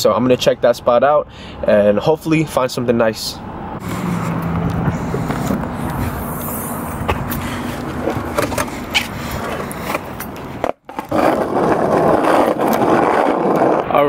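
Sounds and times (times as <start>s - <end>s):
skateboard wheels rolling on asphalt: 3.8s - 14.0s.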